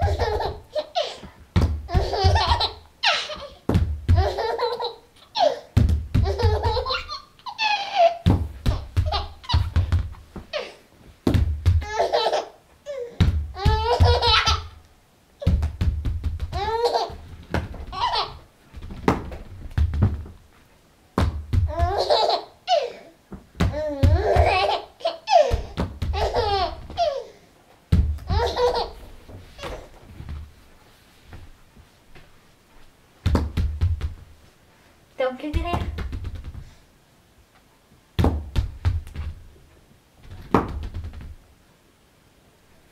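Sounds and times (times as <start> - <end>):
dull thumps: 0.0 - 4.6, 5.7 - 7.1, 8.2 - 12.1, 13.2 - 14.8, 15.4 - 20.6, 21.2 - 22.2, 23.3 - 24.8, 25.5 - 27.1, 27.9 - 30.6, 33.2 - 34.4, 35.5 - 36.8, 38.2 - 39.5, 40.2 - 41.4
baby laughing: 0.0 - 9.9, 11.8 - 14.8, 16.5 - 17.2, 17.8 - 18.4, 21.7 - 23.1, 23.8 - 27.4, 28.3 - 30.0.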